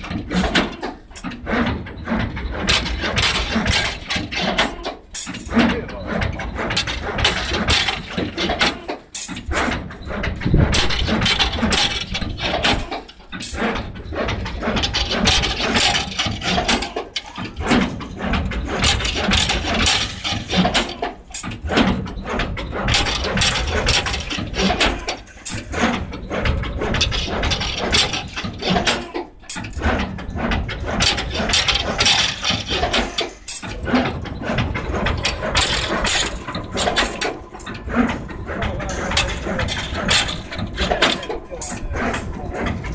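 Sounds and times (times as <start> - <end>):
metallic clattering: 0.0 - 42.9
machine motor running: 9.5 - 42.9.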